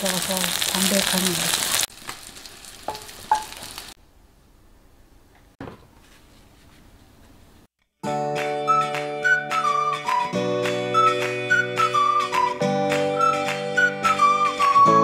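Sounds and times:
faint frying sizzle: 0:00.0 - 0:04.0
flute music: 0:08.0 - 0:15.0.

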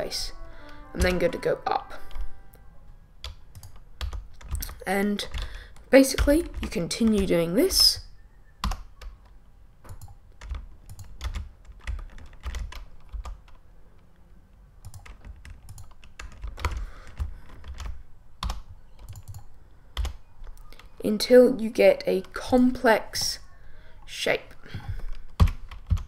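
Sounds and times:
keyboard keys clicking: 0:03.2 - 0:07.5, 0:08.6 - 0:14.2, 0:14.8 - 0:21.0.

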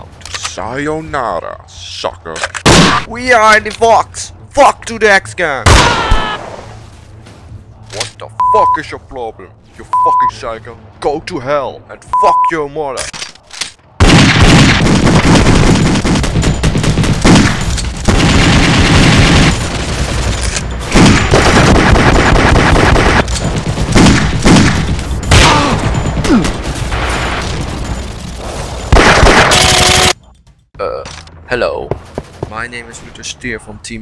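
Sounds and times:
heavy gunfire: 0:14.0 - 0:30.2.

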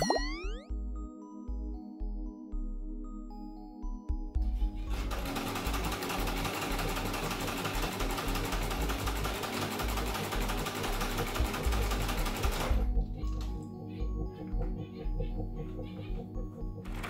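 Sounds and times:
sewing machine running: 0:04.8 - 0:12.9.

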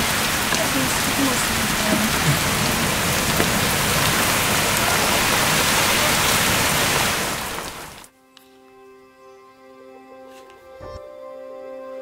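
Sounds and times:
rain pouring: 0:00.0 - 0:08.1
strong wind through trees: 0:00.0 - 0:08.1.

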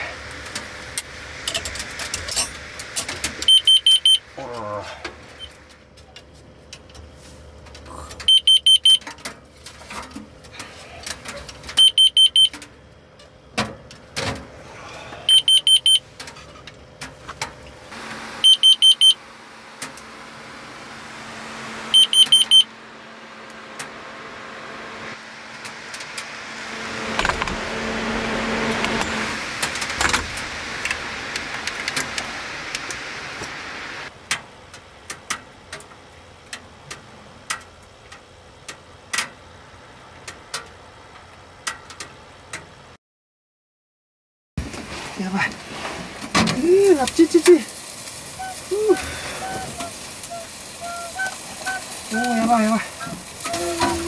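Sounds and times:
alarm beeping: 0:03.4 - 0:04.3, 0:08.2 - 0:09.1, 0:11.8 - 0:12.6, 0:15.3 - 0:16.0, 0:18.4 - 0:19.2, 0:21.9 - 0:22.7
rushing noise: 0:25.1 - 0:34.1.

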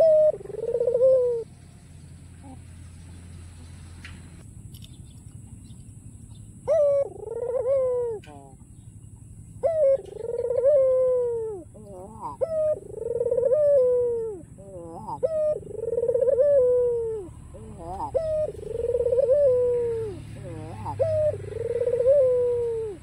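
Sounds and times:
dove cooing: 0:00.0 - 0:01.5, 0:06.6 - 0:08.7, 0:09.6 - 0:23.0.

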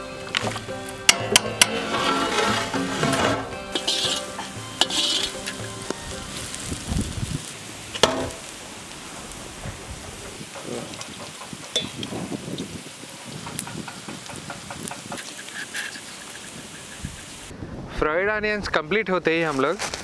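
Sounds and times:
onions sizzling in oil: 0:00.0 - 0:17.5
metal spoon stirring: 0:01.1 - 0:05.8.

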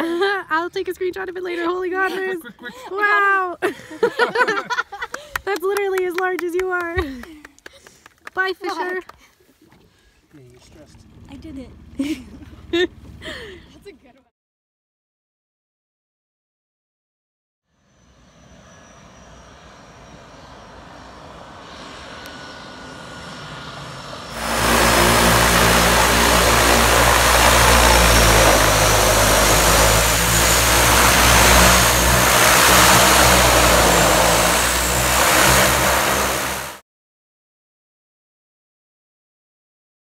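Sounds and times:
turboprop engine drone and whine: 0:10.4 - 0:13.9, 0:17.8 - 0:36.8.

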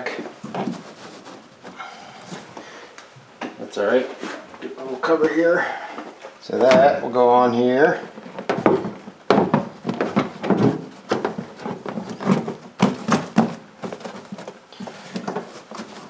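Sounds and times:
cover rustling and crinkling: 0:00.0 - 0:02.7, 0:08.0 - 0:16.0.

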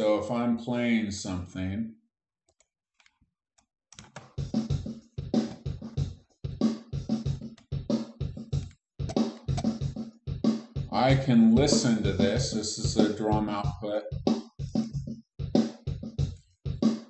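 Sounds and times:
programmed drum beat: 0:04.4 - 0:17.0.

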